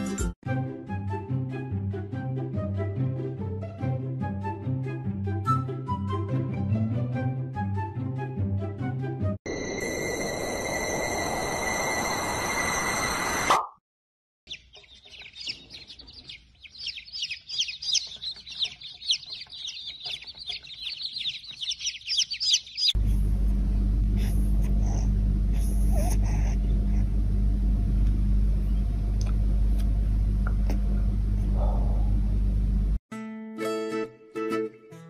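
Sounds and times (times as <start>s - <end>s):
chicks peeping: 14.5s - 23.0s.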